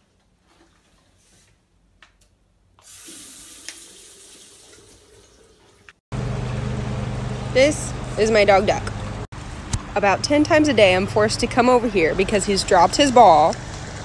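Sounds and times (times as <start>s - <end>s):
tap water running into basin: 2.8s - 6.0s.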